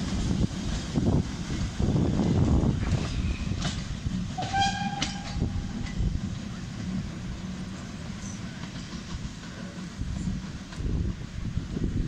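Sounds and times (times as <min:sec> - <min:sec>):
steam locomotive rumbling: 0:00.0 - 0:12.0
steam whistle blast: 0:04.4 - 0:05.7.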